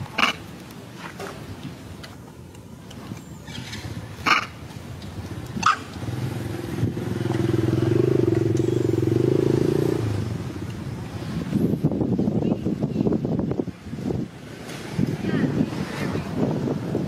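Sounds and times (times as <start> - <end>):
small engine passing by: 5.3 - 10.5.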